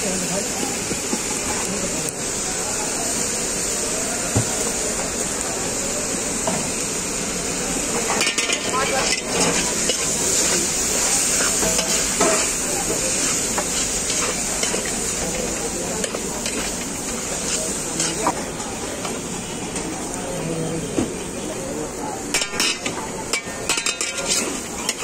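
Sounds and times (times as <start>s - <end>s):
noodles sizzling in a wok: 0.0s - 20.2s, 21.2s - 25.0s
metal spatulas scraping a wok: 8.0s - 18.4s, 22.3s - 25.0s.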